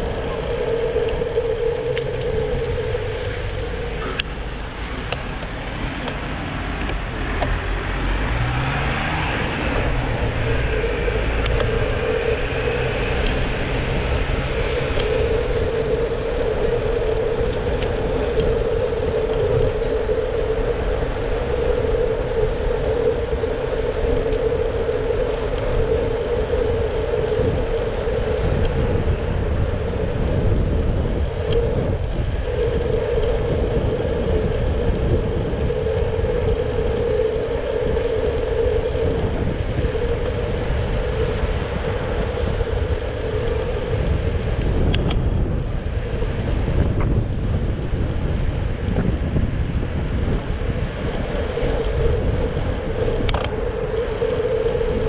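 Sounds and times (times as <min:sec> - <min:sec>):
bicycle whirring: 0:00.0 - 0:55.0
wind and tyre rumble: 0:00.0 - 0:55.0
motor vehicle passing: 0:01.2 - 0:15.6.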